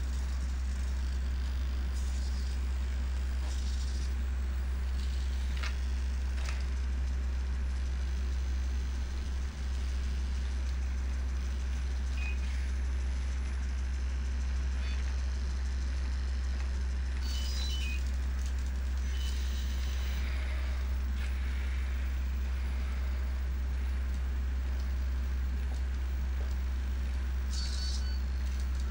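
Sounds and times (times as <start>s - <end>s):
robot motors humming: 0.0s - 28.9s
servo whines: 11.7s - 13.6s, 16.3s - 25.0s, 25.6s - 28.9s.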